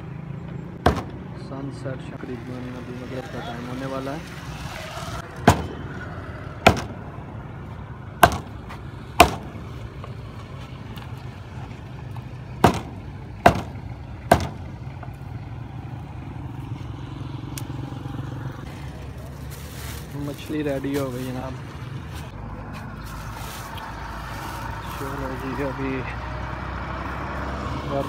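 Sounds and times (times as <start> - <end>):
cleaver chopping on wooden block: 6.7 - 7.0, 8.2 - 8.5, 9.2 - 9.5, 12.6 - 14.7.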